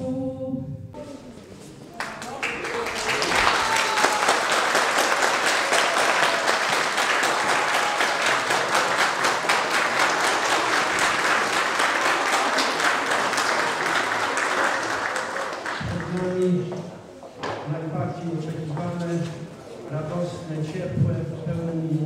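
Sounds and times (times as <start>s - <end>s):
crowd applauding: 2.0s - 16.5s.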